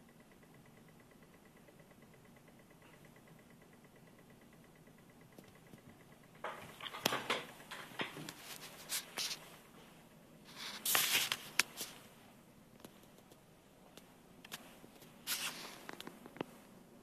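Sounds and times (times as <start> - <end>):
clicks knocks and rustling: 6.4 - 8.6.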